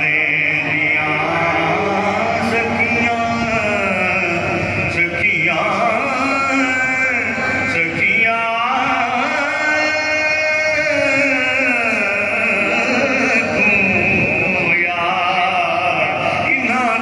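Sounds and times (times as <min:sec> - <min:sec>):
man singing devotional chant: 0:00.0 - 0:17.0.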